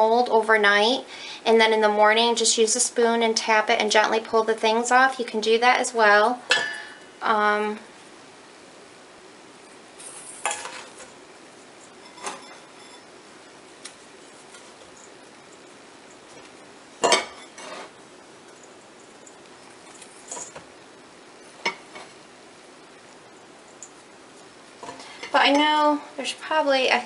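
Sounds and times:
powder rustling: 9.6 - 22.3
gritty scraping in metal bowl: 11.8 - 13.2, 17.1 - 18.0.

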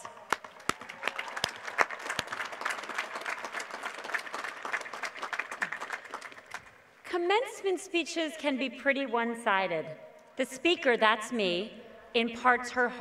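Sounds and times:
crowd applauding: 0.0 - 6.7.

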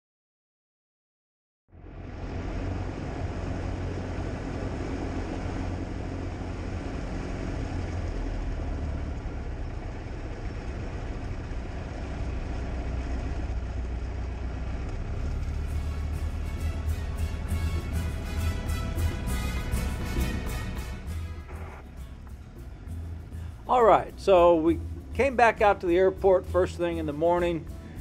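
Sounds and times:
small plane engine droning: 1.7 - 28.0.

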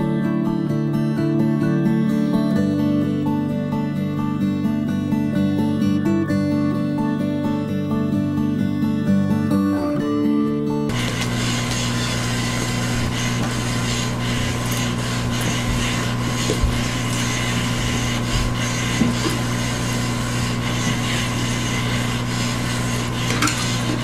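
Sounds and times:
small electric motor whirring: 10.9 - 24.0.

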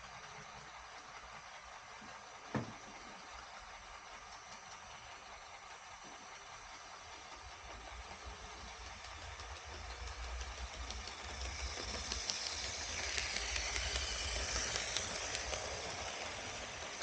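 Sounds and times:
light clicking of train wheels: 0.0 - 17.0
model train running on track: 0.0 - 17.0.

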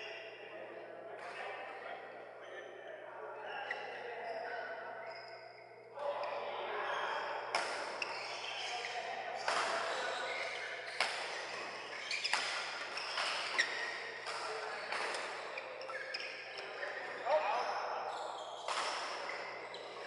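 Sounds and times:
court shoes squeaking: 3.3 - 20.0
rackets hitting shuttlecock: 7.5 - 7.9, 10.9 - 15.3, 18.7 - 19.4.

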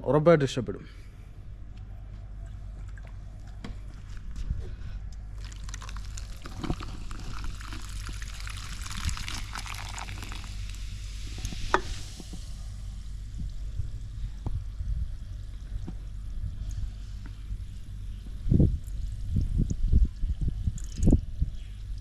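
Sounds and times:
soda fizzing with crackling hiss: 5.4 - 14.2.

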